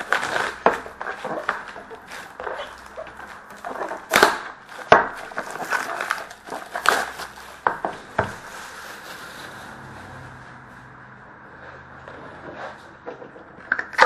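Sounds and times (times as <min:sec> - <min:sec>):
cardboard box crackling and rustling: 0:00.0 - 0:09.9.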